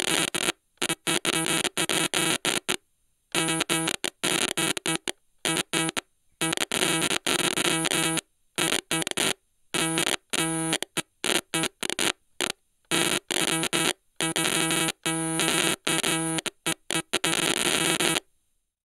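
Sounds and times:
buzzy stuttering synth tone: 3.4s - 10.8s, 12.9s - 18.2s.

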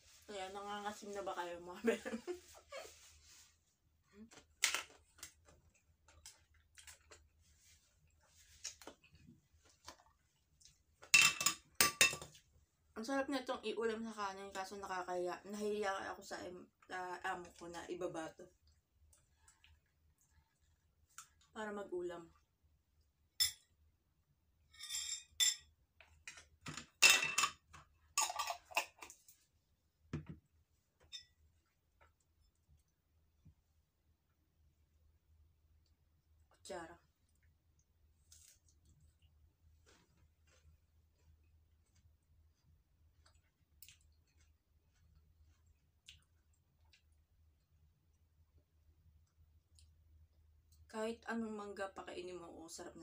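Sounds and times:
tableware clicks and taps: 11.2s - 12.3s
chewing: 40.4s - 47.4s.

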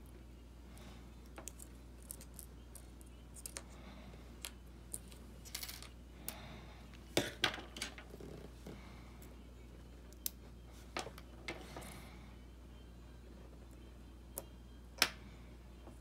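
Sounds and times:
clicks of small parts handled: 3.4s - 3.6s.

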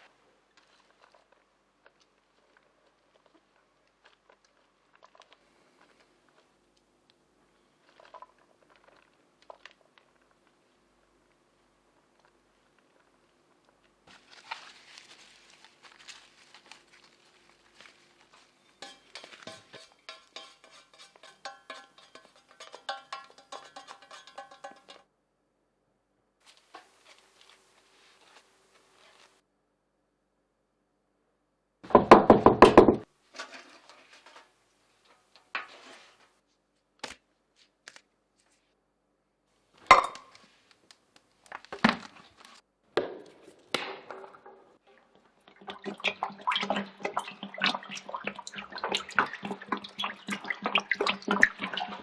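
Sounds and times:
lettuce rustling and pattering: 12.1s - 19.9s
scraping and rustling: 14.0s - 25.0s, 26.4s - 29.4s, 33.2s - 36.7s
metal bowl clinking: 18.4s - 25.0s.

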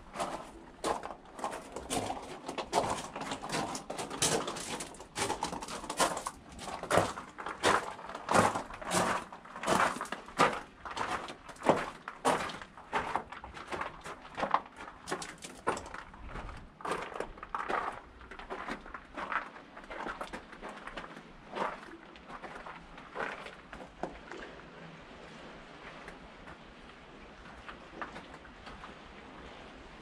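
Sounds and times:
footsteps walking: 0.0s - 23.8s.

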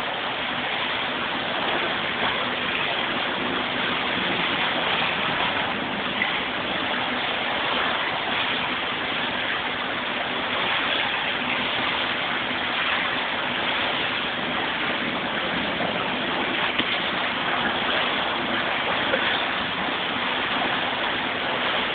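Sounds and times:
pool water splashing: 0.0s - 21.9s
small water slaps: 10.5s - 21.9s.

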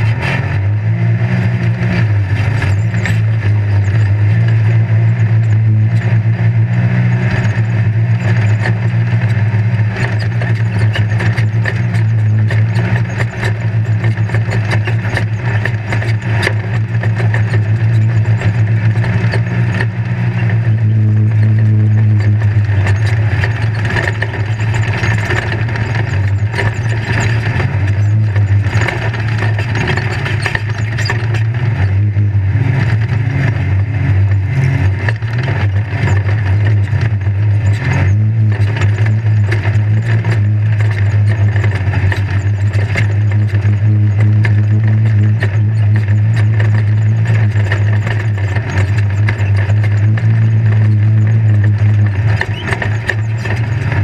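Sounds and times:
engine droning: 0.0s - 54.0s
chassis rattling and knocking: 1.3s - 54.0s.

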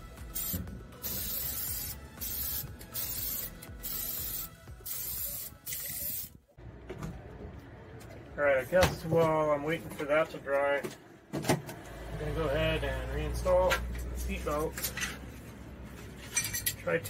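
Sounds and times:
aerosol can spraying: 0.2s - 6.4s.

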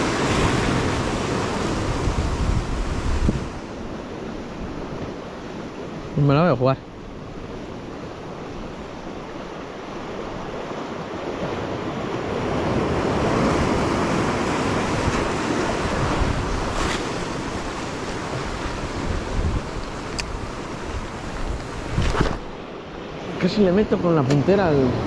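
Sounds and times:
surf breaking over rocks: 0.0s - 5.2s, 9.2s - 22.7s.

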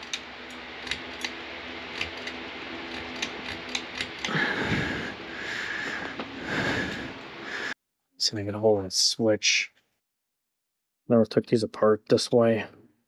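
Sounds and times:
breathy rushing noise: 4.3s - 7.8s.

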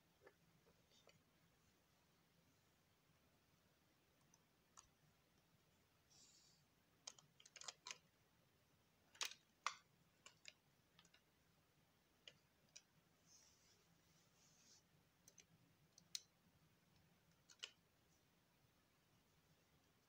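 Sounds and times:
wooden toy clicking on plastic: 7.0s - 8.1s, 9.1s - 11.3s, 17.3s - 17.8s.

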